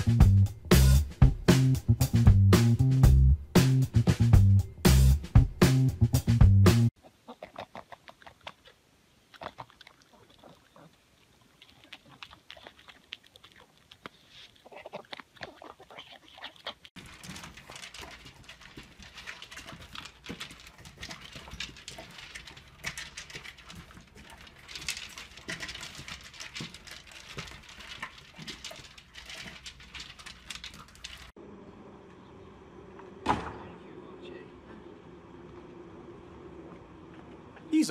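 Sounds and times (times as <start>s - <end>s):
puppies eating dry kibble: 7.4s - 31.4s.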